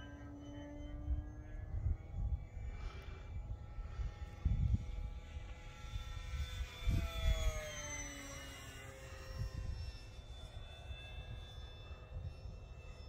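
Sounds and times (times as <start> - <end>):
model plane motor whining: 0.0 - 13.0
wind rumbling on microphone: 1.1 - 7.7, 9.3 - 13.0.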